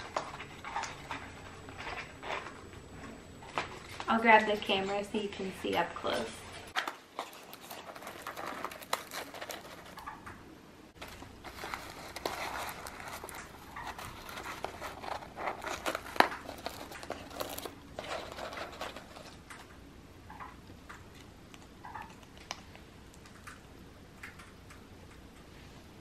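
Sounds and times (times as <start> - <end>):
paper crinkling and rustling: 6.2 - 10.2, 11.0 - 19.7.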